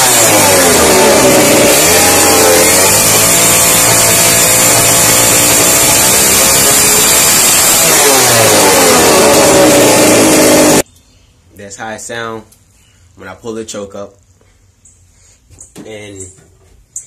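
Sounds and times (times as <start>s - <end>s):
two-stroke engine revving: 0.0s - 10.8s.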